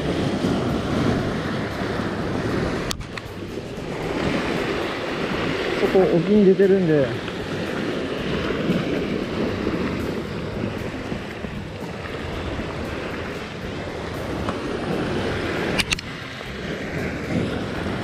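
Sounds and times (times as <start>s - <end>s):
waves washing against rocks: 0.0s - 18.0s
wind on microphone: 0.0s - 18.0s
sharp click: 2.8s - 3.3s, 15.7s - 16.1s.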